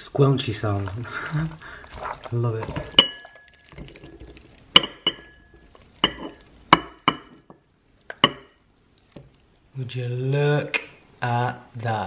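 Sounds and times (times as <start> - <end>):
pasta squelching: 0.0 - 10.5
utensil clinking on ceramic bowl: 1.9 - 8.6.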